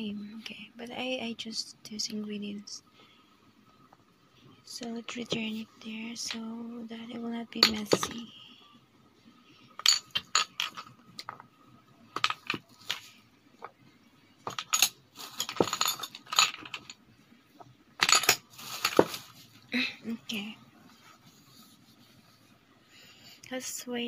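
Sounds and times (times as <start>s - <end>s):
spice bottles clinking: 9.8s - 10.9s, 14.5s - 16.9s.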